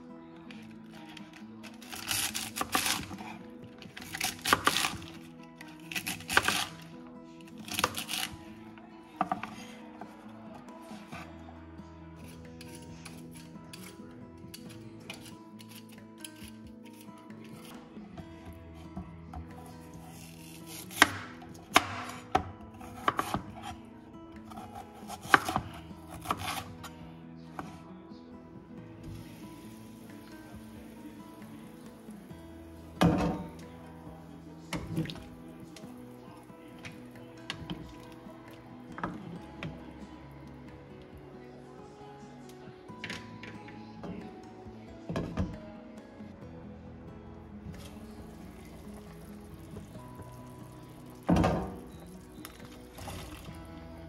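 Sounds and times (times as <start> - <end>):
background music: 0.0 - 54.0
knife cutting crisp vegetables: 1.7 - 6.9, 7.5 - 8.4, 12.2 - 17.8, 20.0 - 23.8, 24.5 - 26.9
knife chopping on cutting board: 20.7 - 23.6, 24.5 - 26.6.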